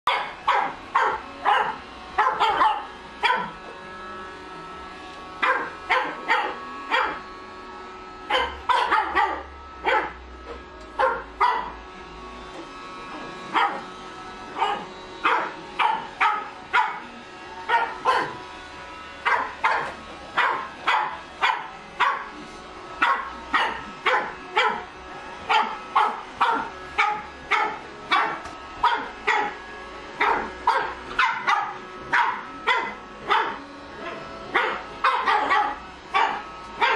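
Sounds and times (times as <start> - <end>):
puppy barking: 0.1 - 3.6, 5.4 - 7.2, 8.3 - 10.2, 11.0 - 11.8, 13.5 - 13.9, 14.5 - 18.4, 19.2 - 22.4, 23.0 - 24.9, 25.5 - 29.6, 30.2 - 36.9
robot vacuum cleaner hum: 0.1 - 36.9.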